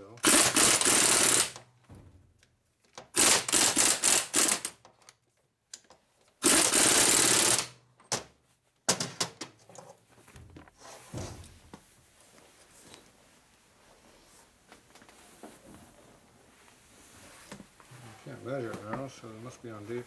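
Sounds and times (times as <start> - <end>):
power impact tool hammering: 0.2 - 1.6, 3.1 - 4.8, 6.4 - 7.7.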